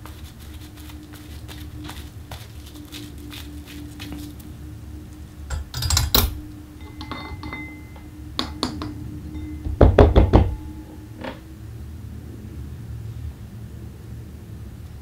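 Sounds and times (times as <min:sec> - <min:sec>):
steady low hum: 0:00.0 - 0:15.0
hard objects knocking and clicking: 0:05.5 - 0:09.0, 0:09.6 - 0:11.4.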